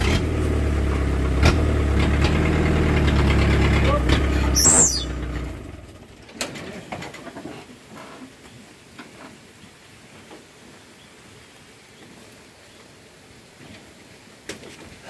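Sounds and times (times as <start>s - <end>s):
truck engine running: 0.0s - 6.3s
high falling whistle: 4.6s - 5.2s.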